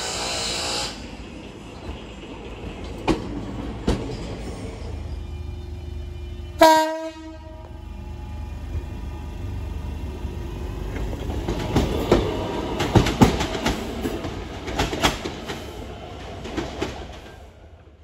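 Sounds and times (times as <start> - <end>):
train low rumble: 0.0 - 18.0
train wheels clattering over rail joints: 1.7 - 4.8, 10.8 - 17.5.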